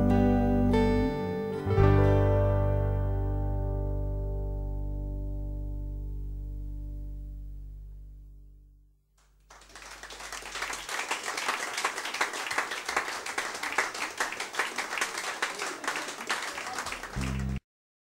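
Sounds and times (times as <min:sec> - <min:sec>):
guitar chord: 0:00.0 - 0:08.6
audience applause: 0:09.5 - 0:17.6.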